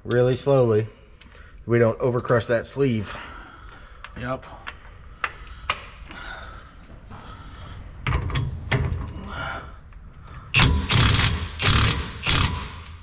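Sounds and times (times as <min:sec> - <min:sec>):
impact wrench hammering in bursts: 0:10.5 - 0:13.0.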